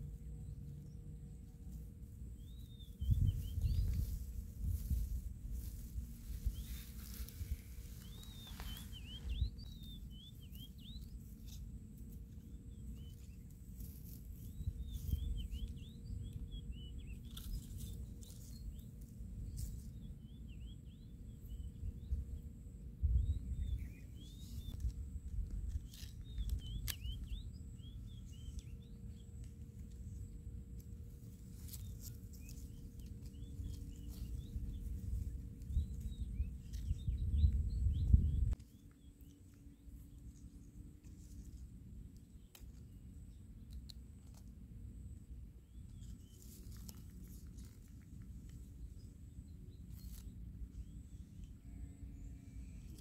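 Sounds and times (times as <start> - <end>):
dry grass rustling: 0.0 - 20.6, 23.6 - 53.0
low rumble: 0.0 - 38.6
small birds twittering: 0.0 - 53.0.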